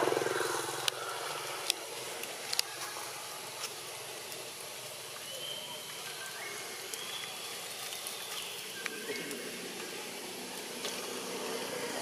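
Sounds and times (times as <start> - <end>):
steady hiss: 0.0 - 12.0
faint high chirps: 5.2 - 10.0.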